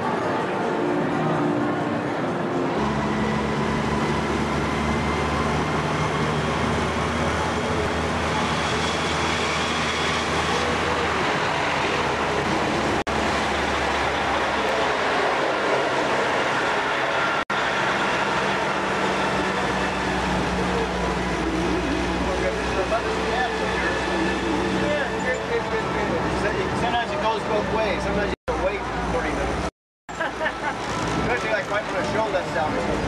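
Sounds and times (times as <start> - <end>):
vehicle rumble from inside: 17.5 - 27.0.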